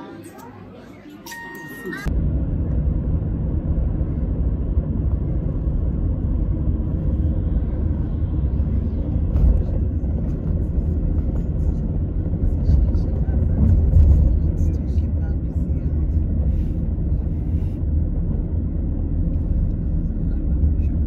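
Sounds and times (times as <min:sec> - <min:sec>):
vehicle engine and tyre rumble: 0:02.1 - 0:21.0.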